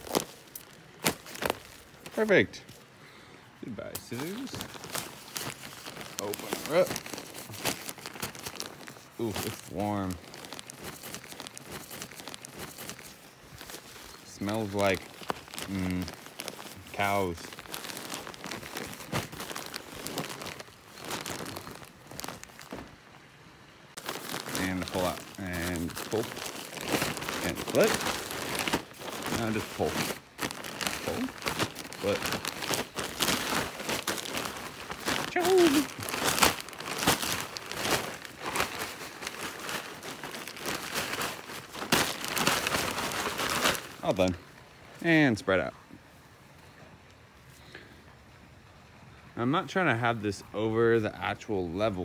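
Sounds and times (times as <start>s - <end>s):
plastic bag crinkling: 0.0s - 2.8s, 3.8s - 23.3s, 23.9s - 44.7s
soil spilling out: 24.0s - 44.4s.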